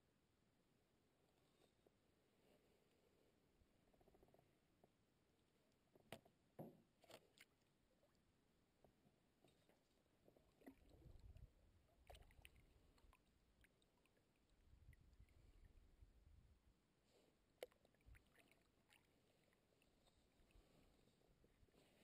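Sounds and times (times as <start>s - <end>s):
paddle swishing through water: 17.1s - 22.0s.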